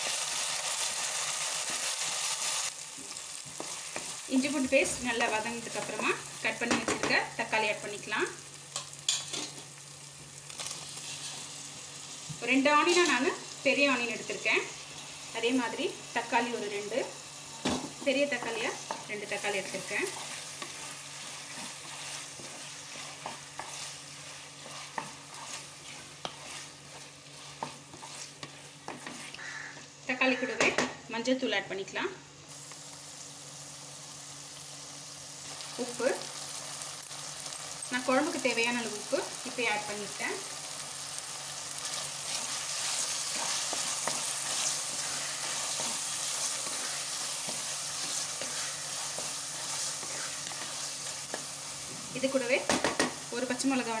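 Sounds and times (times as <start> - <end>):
vegetables sizzling in hot oil: 0.0 - 31.5, 32.3 - 54.0
spatula tapping and scraping pot: 21.5 - 29.4.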